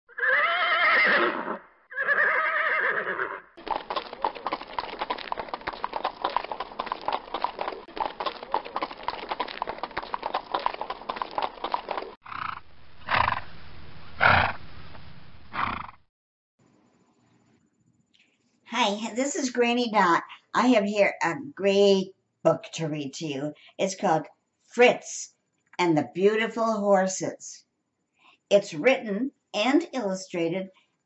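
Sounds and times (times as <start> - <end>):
horse whinnying: 0.1 - 13.4
galloping hoofbeats: 3.6 - 12.2.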